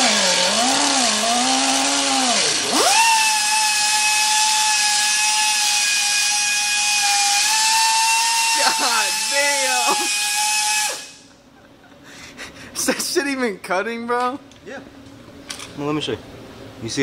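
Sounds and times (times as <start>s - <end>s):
cut-off wheel cutting metal: 0.0s - 11.2s.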